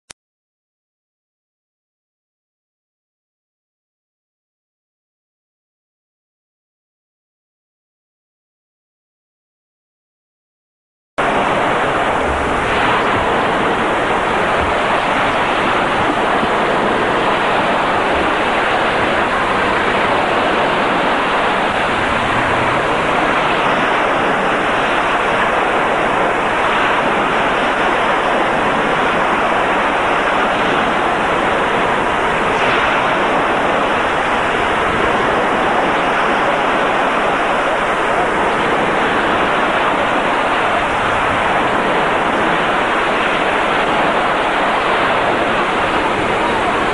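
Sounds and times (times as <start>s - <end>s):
water rushing: 11.2s - 46.9s.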